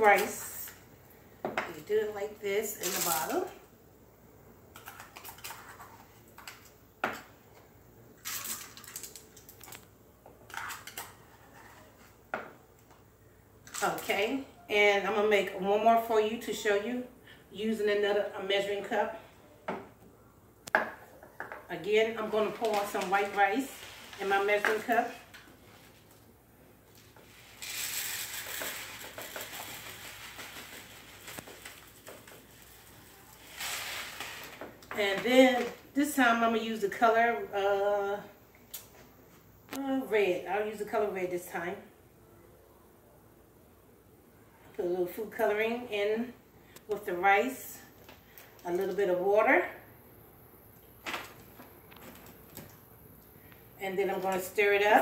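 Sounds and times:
plastic bag rustle: 0:22.2 - 0:26.2, 0:26.9 - 0:34.8
plastic bottle crinkling: 0:26.9 - 0:34.9
rice pouring into cup: 0:27.0 - 0:34.6.

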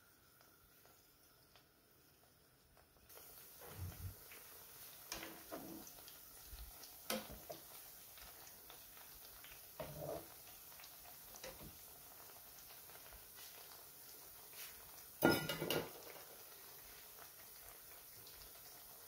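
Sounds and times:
frying in hot oil: 0:00.0 - 0:19.0
skimmer clinking against pan: 0:15.2 - 0:15.9.

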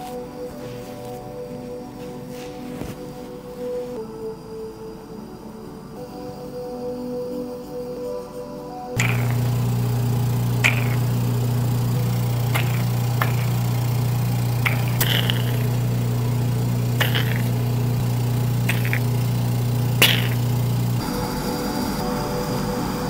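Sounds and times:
vacuum pump humming: 0:09.0 - 0:23.0.

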